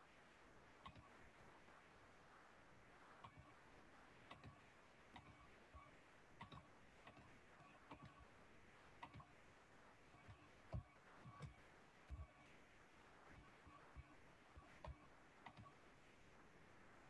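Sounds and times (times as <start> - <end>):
faint clicks: 4.2 - 8.2, 13.4 - 15.8.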